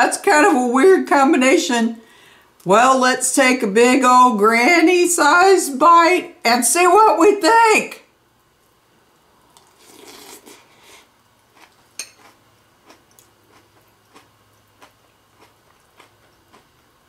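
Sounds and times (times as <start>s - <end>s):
person chewing crunchy cereal: 9.6s - 17.0s.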